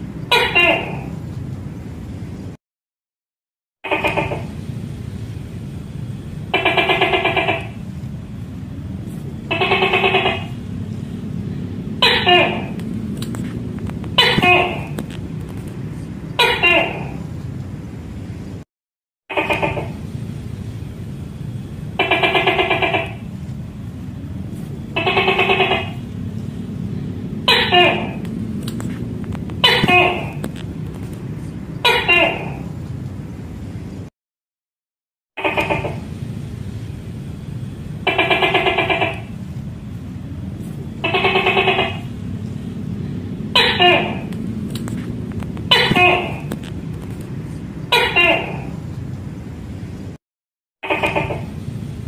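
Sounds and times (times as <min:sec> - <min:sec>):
gecko calling: 0:00.0 - 0:01.2, 0:03.8 - 0:04.6, 0:06.5 - 0:07.9, 0:09.4 - 0:17.3, 0:19.3 - 0:20.0, 0:22.0 - 0:23.3, 0:24.8 - 0:26.1, 0:26.8 - 0:32.8, 0:35.4 - 0:36.1, 0:38.0 - 0:39.4, 0:40.7 - 0:48.8, 0:50.8 - 0:51.6
steady low hum: 0:00.0 - 0:02.6, 0:03.8 - 0:18.6, 0:19.3 - 0:34.1, 0:35.4 - 0:50.2, 0:50.9 - 0:52.0
steady low rumble: 0:00.0 - 0:02.6, 0:03.9 - 0:18.6, 0:19.6 - 0:34.1, 0:35.8 - 0:50.2, 0:51.4 - 0:52.0.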